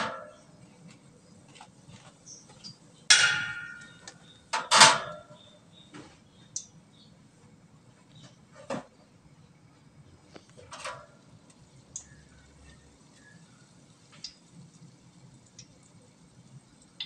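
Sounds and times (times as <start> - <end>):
metal utensils clanking on pan: 2.3 - 5.4, 10.6 - 11.2
light metal ticks: 11.9 - 12.2, 14.1 - 14.4.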